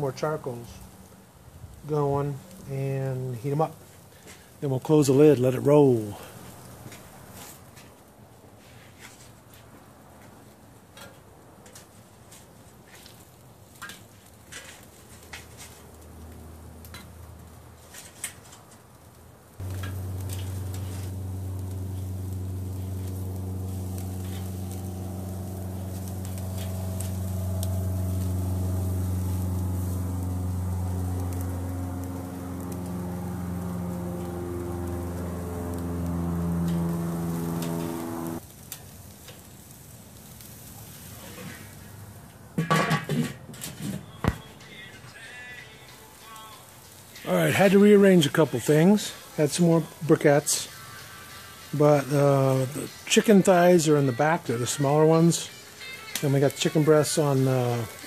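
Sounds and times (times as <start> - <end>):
chicken sizzling on grill: 0.0 - 58.0
low drone with held tones: 19.6 - 38.4, 47.1 - 58.0.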